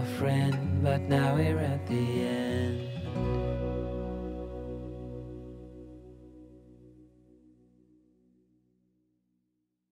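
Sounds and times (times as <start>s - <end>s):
held chord ringing: 1.9s - 8.0s.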